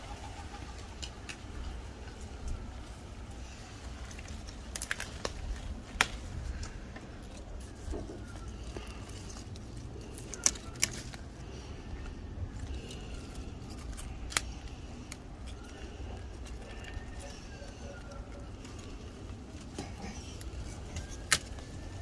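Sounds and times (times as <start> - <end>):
pepper stems snapping: 4.4 - 6.8, 10.0 - 11.6, 12.7 - 15.8, 19.8 - 21.7.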